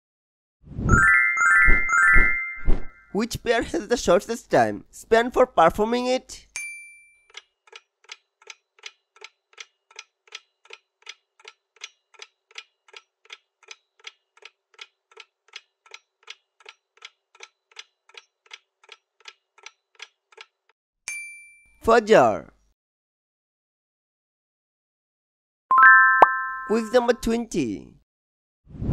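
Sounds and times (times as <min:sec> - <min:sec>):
bright chime: 0:01.0 - 0:03.2, 0:25.7 - 0:27.0
person speaking: 0:03.1 - 0:06.5, 0:26.6 - 0:28.0
clock-like ticking: 0:07.3 - 0:20.6.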